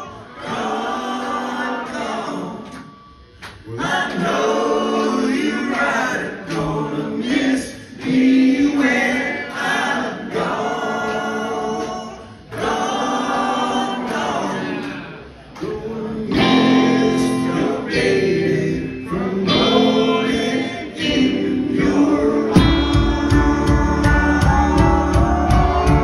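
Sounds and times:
male voices singing in harmony: 0.0s - 2.8s, 3.6s - 26.0s
live rock band: 14.2s - 26.0s.

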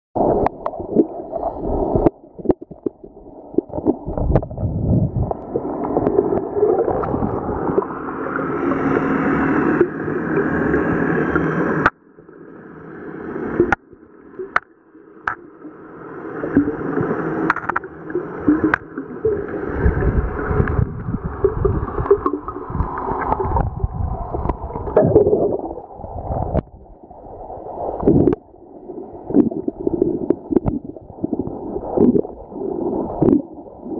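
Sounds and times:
underwater churning and bubbling: 0.2s - 33.9s
sharp clicks and knocks: 17.5s - 17.9s.

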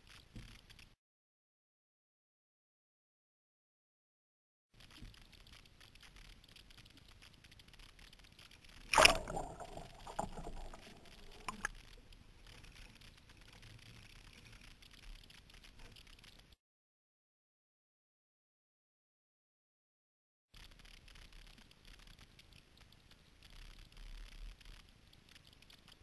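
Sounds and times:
low water noise: 4.8s - 16.6s
water gurgling: 8.7s - 12.1s
kayak splashing into water: 8.9s - 11.7s.

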